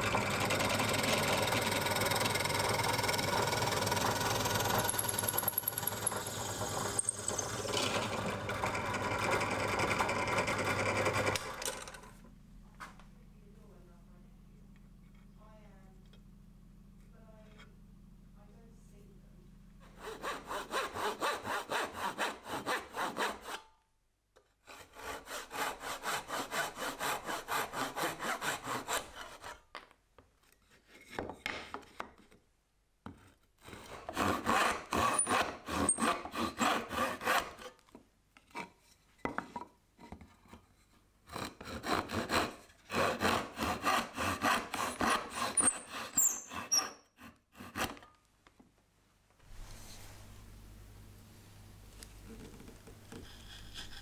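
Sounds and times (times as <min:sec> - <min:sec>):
hand saw cutting wood: 0:00.0 - 0:11.6, 0:19.8 - 0:23.7, 0:24.6 - 0:29.7, 0:33.6 - 0:37.8, 0:41.2 - 0:48.2, 0:53.1 - 0:54.0.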